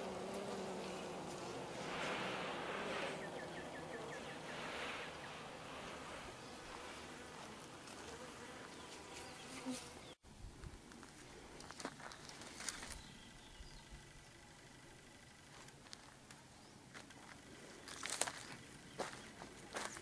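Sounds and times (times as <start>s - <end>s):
bees buzzing: 0.0s - 10.2s.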